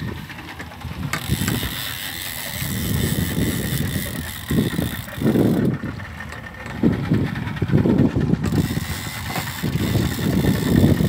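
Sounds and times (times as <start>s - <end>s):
fishing reel drag buzzing: 0.8s - 5.9s, 8.3s - 11.0s.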